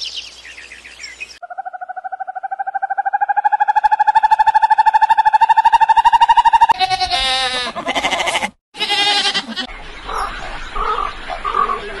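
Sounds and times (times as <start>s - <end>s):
rapid pulsing call: 1.4s - 6.8s
wavering animal calls: 1.4s - 11.8s.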